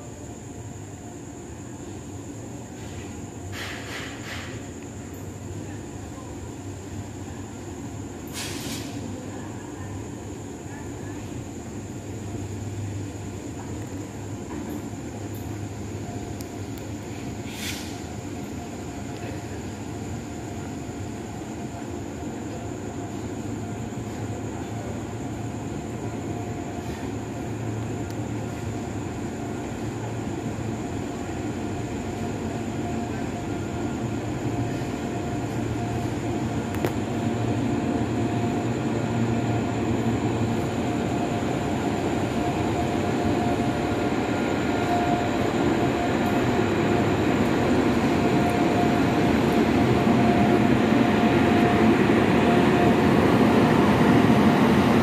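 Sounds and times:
electric locomotives rumbling: 0.0 - 55.0
steady whine: 32.2 - 55.0.

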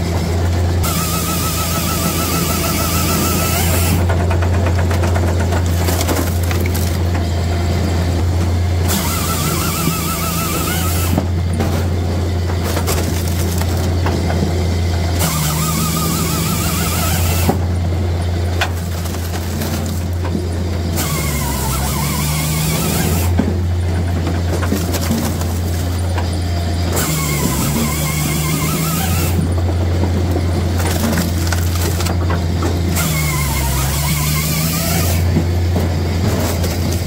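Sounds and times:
firewood processor droning: 0.0 - 37.0
saw cutting through log: 0.7 - 7.7, 8.5 - 14.3, 15.0 - 29.8, 30.4 - 37.0
split firewood clattering: 3.8 - 7.3, 11.2 - 14.6, 18.4 - 37.0.

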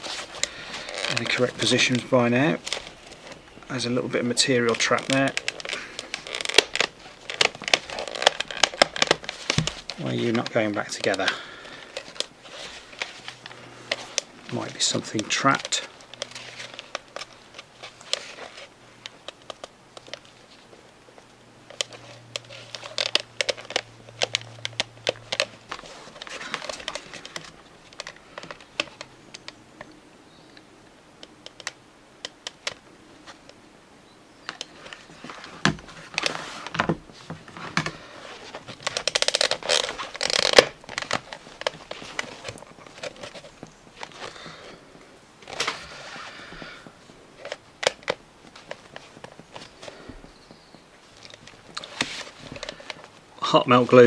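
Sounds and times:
small clicks and scrapes: 4.3 - 33.6, 34.4 - 53.2.

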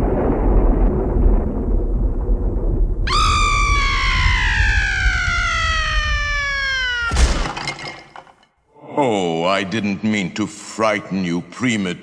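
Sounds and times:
recorded thunder rumble: 0.0 - 6.4
long high scream sliding downward: 3.1 - 7.5.

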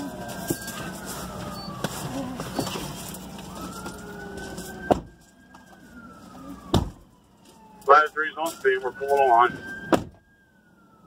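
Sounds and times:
fire engine siren wailing: 0.0 - 11.0.

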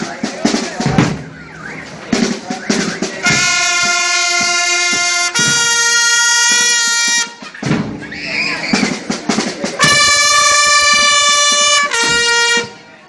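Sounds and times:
marching band drums: 0.0 - 13.0
brass horns holding long notes: 3.0 - 7.4, 9.8 - 12.9.

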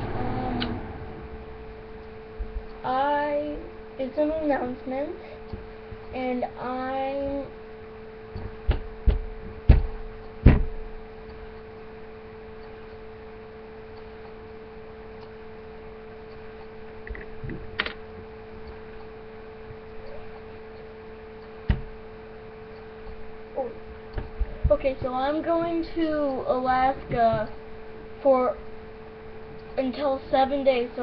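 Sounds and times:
steady electrical hum: 0.0 - 31.0
sharp thumps: 8.3 - 11.0, 21.6 - 22.0.

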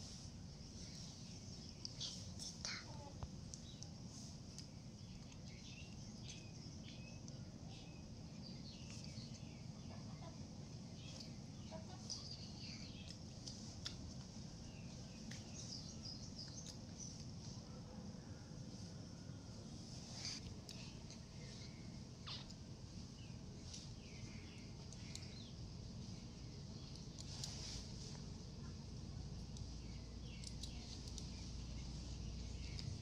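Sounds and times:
low background hum: 0.0 - 33.0
small birds chirping: 0.0 - 33.0
light clicks: 24.8 - 25.4, 30.3 - 31.4.

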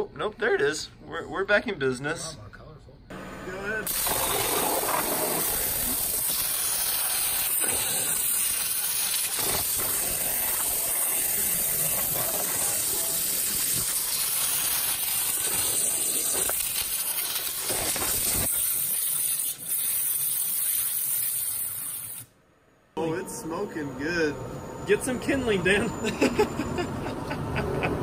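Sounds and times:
waterjet stream hissing: 3.1 - 22.3.

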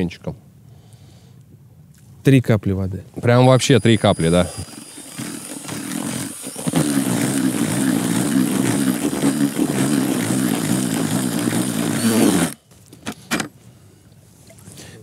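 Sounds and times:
cordless drill with whisk stirring: 3.2 - 12.6.

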